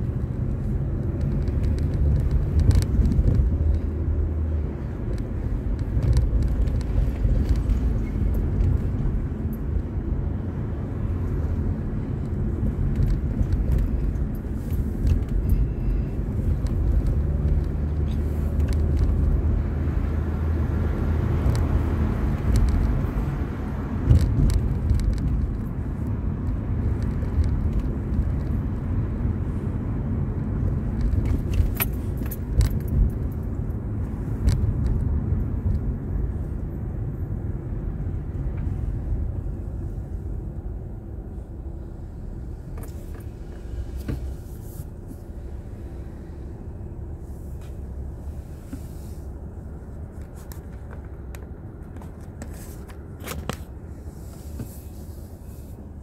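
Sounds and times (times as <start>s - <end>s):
car engine and road rumble: 0.0s - 56.0s.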